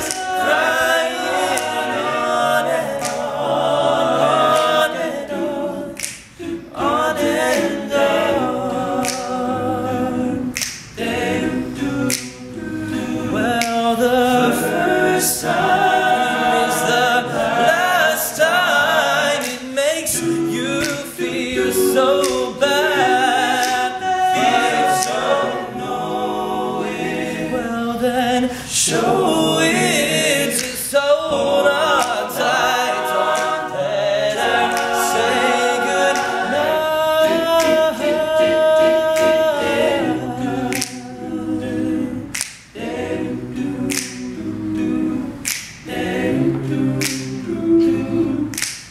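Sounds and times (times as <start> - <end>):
percussive clicks: 0.0 - 1.8, 3.0 - 3.3, 6.0 - 6.5, 9.0 - 9.4, 10.5 - 11.0, 12.0 - 12.4, 13.6 - 13.9, 20.8 - 22.6, 40.7 - 41.0, 42.3 - 42.8, 43.9 - 44.4, 45.4 - 47.5, 48.5 - 48.9
male a cappella group singing: 0.0 - 48.9.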